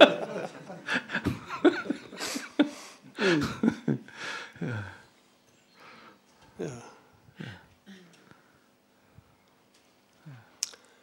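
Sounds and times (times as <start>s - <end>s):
men chuckling: 0.0s - 5.0s.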